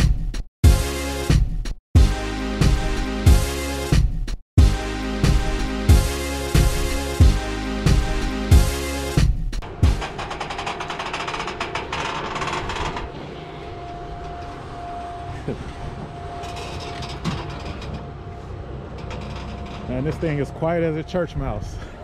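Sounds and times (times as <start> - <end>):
fast rattling clatter: 9.6 - 13.4.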